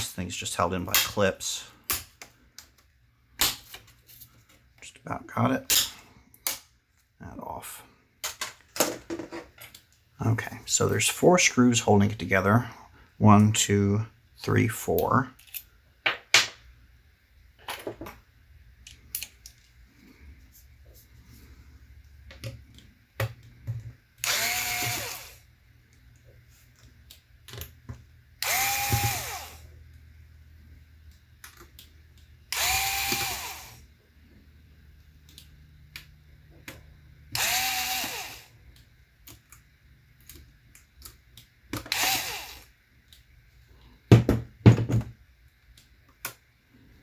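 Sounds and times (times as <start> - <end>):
cordless screwdriver motor whine: 24.2 - 25.4, 28.4 - 29.7, 32.5 - 33.8, 37.3 - 38.5, 41.9 - 42.7.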